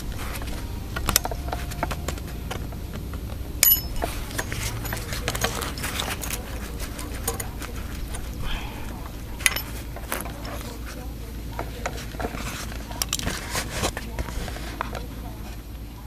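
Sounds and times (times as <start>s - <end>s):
steady low rumble: 0.0s - 16.0s
plastic connectors clicking: 11.8s - 15.0s.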